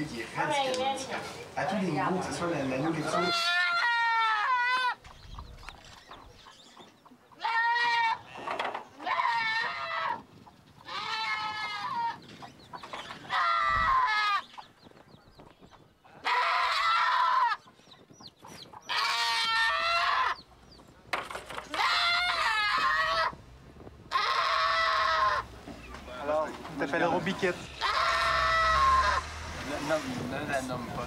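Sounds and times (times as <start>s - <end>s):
goat bleating: 3.0s - 5.0s, 7.4s - 10.2s, 10.8s - 12.2s, 13.2s - 14.5s, 16.2s - 17.6s, 18.9s - 20.4s, 21.7s - 23.4s, 24.1s - 25.5s, 27.6s - 29.3s.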